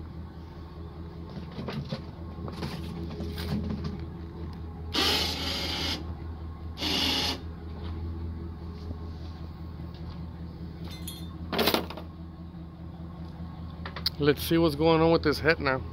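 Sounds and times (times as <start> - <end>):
steady low hum: 0.0 - 15.9
electric hoist motor: 4.9 - 6.1, 6.8 - 7.5
chain clanks and rattles: 10.8 - 12.1.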